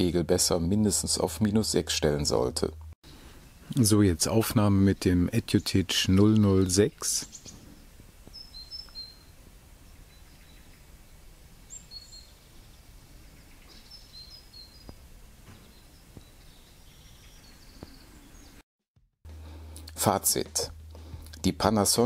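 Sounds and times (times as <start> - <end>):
small birds chirping: 3.1 - 18.6.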